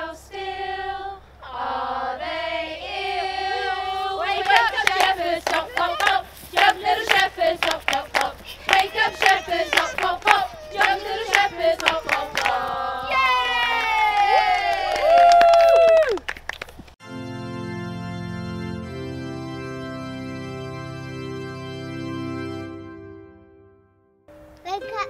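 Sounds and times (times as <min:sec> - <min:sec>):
women and children singing: 0:00.0 - 0:14.1
hand clapping in a steady beat: 0:04.4 - 0:12.6.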